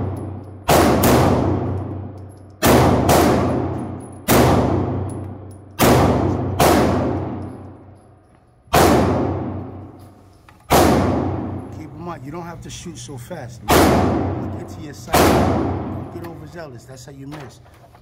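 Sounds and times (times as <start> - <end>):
pistol shots echoing indoors: 0.0 - 8.1, 8.7 - 10.0, 10.7 - 11.8, 13.7 - 16.2.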